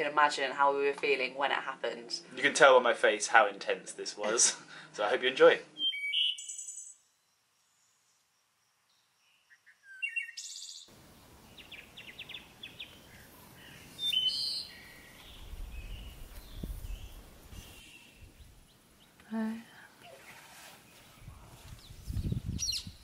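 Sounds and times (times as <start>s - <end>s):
wild birds calling: 5.6s - 7.0s, 9.2s - 23.0s.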